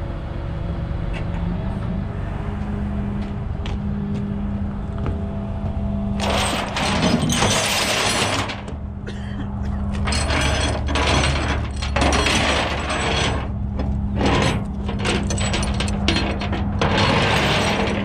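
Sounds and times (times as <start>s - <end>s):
truck engine hum: 0.0s - 18.0s
winch clattering and ratcheting: 10.0s - 18.0s.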